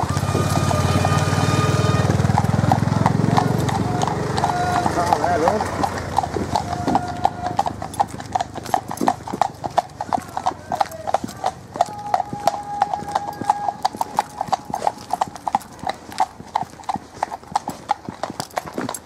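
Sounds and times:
horse hooves on tarmac: 0.0 - 19.0.

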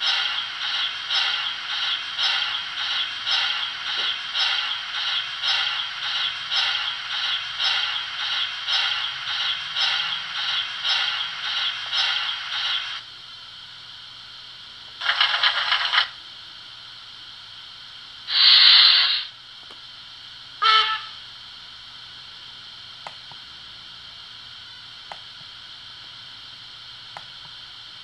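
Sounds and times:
rhythmic steam scraping effect: 0.0 - 28.0
short bursts of hissing: 18.3 - 19.4.

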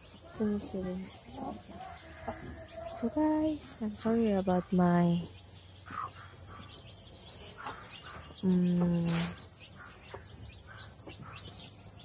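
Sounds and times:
crickets chirping: 0.0 - 12.0
person humming: 8.4 - 9.4.

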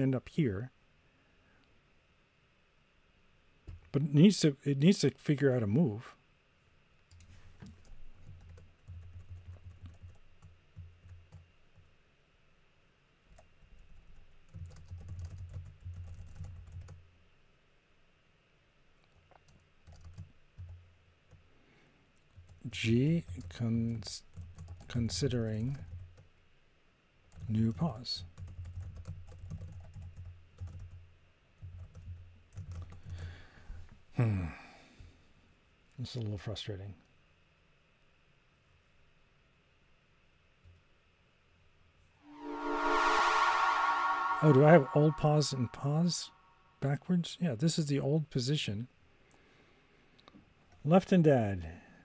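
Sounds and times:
typing on keyboard: 7.1 - 11.9, 13.3 - 17.0, 19.4 - 20.8, 24.3 - 24.9, 28.3 - 31.0, 31.6 - 33.1.

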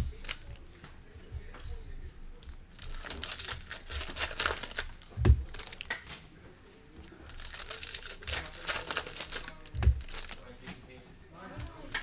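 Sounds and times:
foil wrapper crinkling: 0.1 - 0.6, 2.4 - 5.9, 7.1 - 10.5.

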